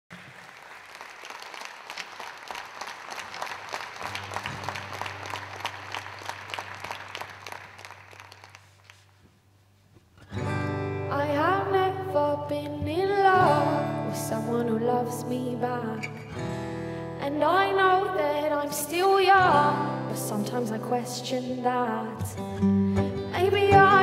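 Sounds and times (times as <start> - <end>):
audience applauding: 0.1 - 9.2
acoustic guitars playing: 4.0 - 6.3, 10.1 - 24.0
woman singing: 11.1 - 16.2, 17.2 - 24.0.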